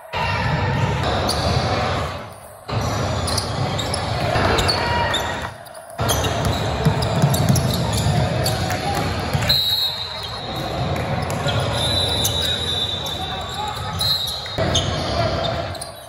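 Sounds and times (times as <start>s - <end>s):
crowd chatter: 0.0s - 16.0s
sneaker squeaks: 1.0s - 1.6s, 2.4s - 16.0s
basketball bouncing on court: 6.0s - 9.5s.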